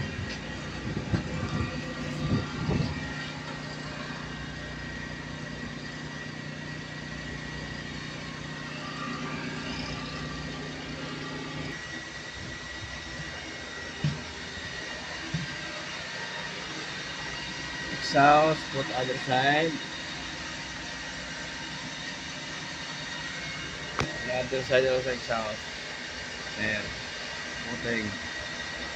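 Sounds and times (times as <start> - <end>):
machine hum: 0.0 - 28.9.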